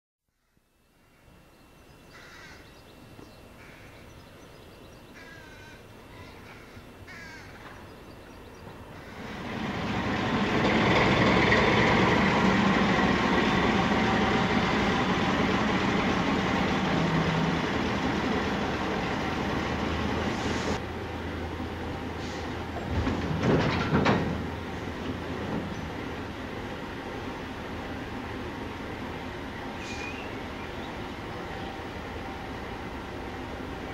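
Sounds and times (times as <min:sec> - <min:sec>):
diesel locomotive engine: 0:02.6 - 0:33.9
short bird calls: 0:29.8 - 0:30.9.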